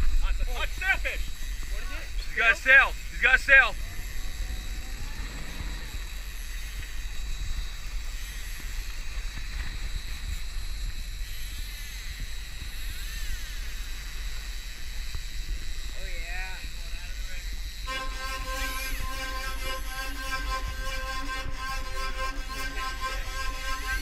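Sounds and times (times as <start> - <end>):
wind on microphone: 0.0 - 24.0
outboard motor running: 1.2 - 10.1.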